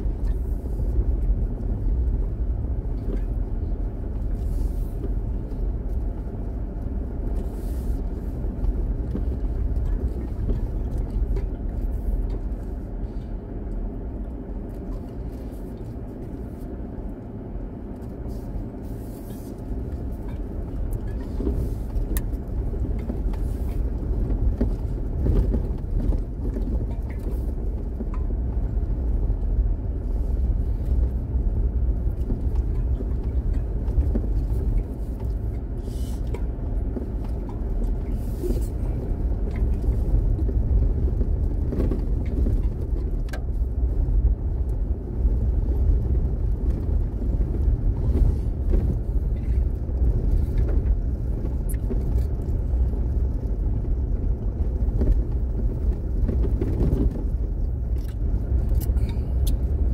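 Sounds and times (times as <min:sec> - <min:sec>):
tyres rolling on dirt road: 0:00.0 - 0:59.9.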